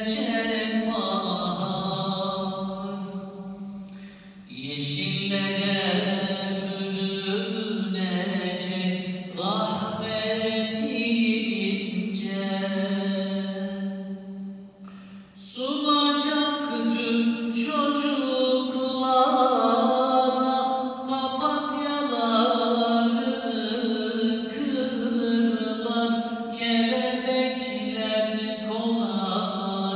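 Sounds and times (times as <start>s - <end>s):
man singing devotional chant: 0.0s - 3.6s, 4.5s - 14.2s, 15.4s - 29.9s.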